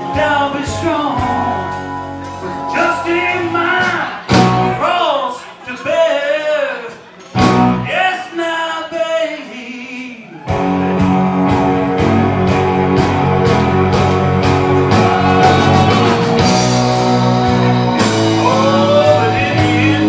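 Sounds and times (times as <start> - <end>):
drums keeping steady beat: 0.0 - 5.0, 6.9 - 7.9, 10.5 - 20.0
live blues-rock band: 0.0 - 5.0, 6.9 - 7.9, 10.4 - 20.0.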